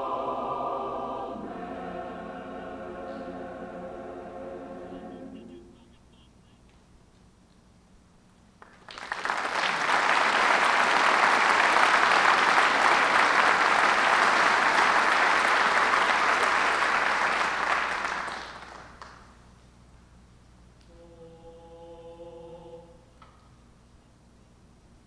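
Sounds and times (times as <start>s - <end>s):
audience applauding: 8.6s - 19.3s.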